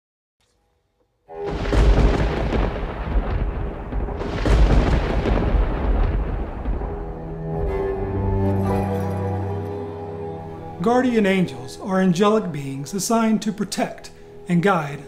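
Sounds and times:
deep rolling thunder: 0:01.4 - 0:08.4.

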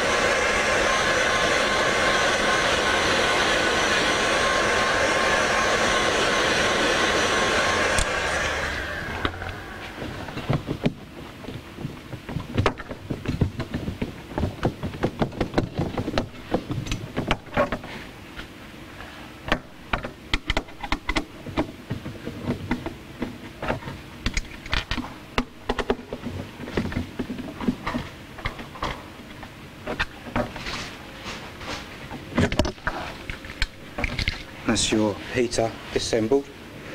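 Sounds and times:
heat gun blowing: 0:00.0 - 0:10.7.

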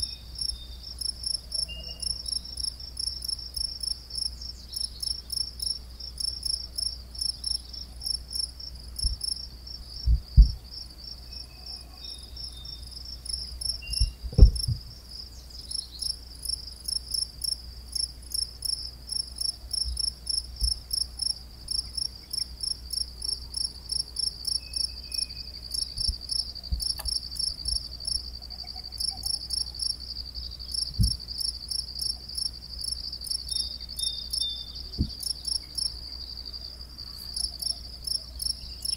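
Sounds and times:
crickets chirping: 0:00.0 - 0:38.9
low thumps: 0:09.0 - 0:09.3, 0:10.0 - 0:10.7, 0:14.0 - 0:14.9, 0:30.9 - 0:31.3, 0:35.0 - 0:35.2.

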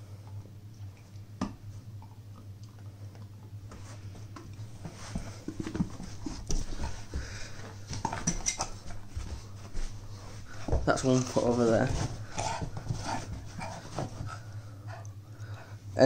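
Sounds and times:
rustling: 0:03.7 - 0:14.7.

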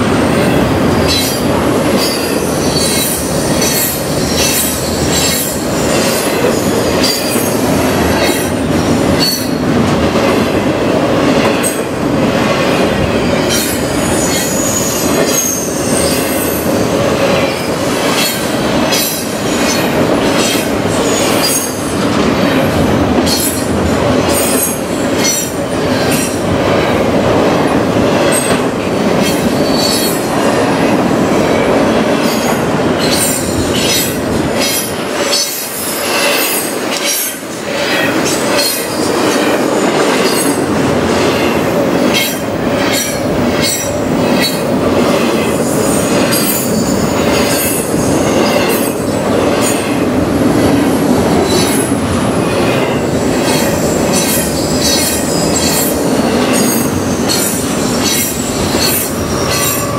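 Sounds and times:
freight train wheels rumbling on track: 0:00.0 - 0:59.9
high-pitched wheel squeal: 0:14.0 - 0:16.2.

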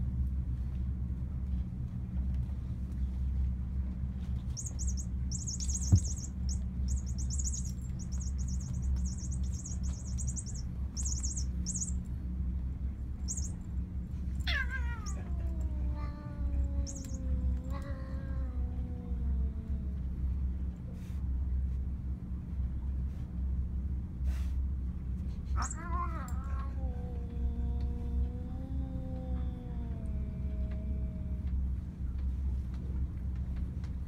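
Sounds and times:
steady low hum: 0:00.0 - 0:34.0
rapid high-pitched chirping: 0:04.5 - 0:12.0, 0:13.2 - 0:13.6, 0:16.8 - 0:17.3, 0:25.6 - 0:25.8
cat yowling: 0:04.6 - 0:12.0, 0:13.2 - 0:13.6, 0:14.4 - 0:20.0, 0:25.6 - 0:31.4.

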